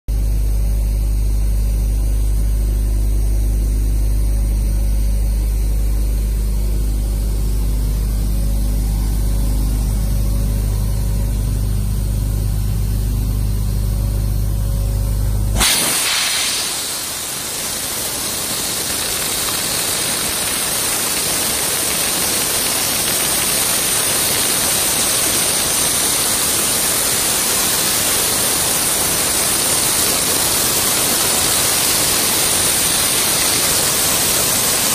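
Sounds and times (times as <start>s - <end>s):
low machine hum: 0.1s - 34.9s
ice-blasting nozzle spraying: 15.5s - 34.9s.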